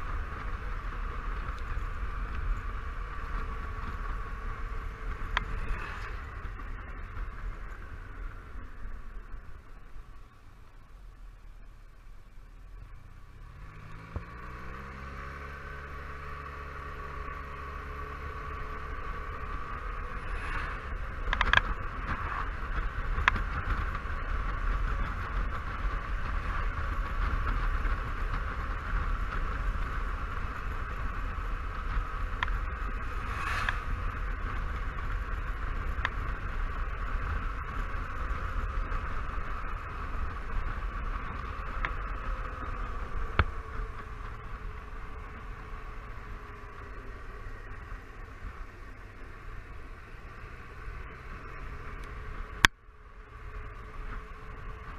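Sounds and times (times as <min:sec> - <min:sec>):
wind and road noise: 0:00.0 - 0:54.9
scooter engine accelerating: 0:13.3 - 0:54.9.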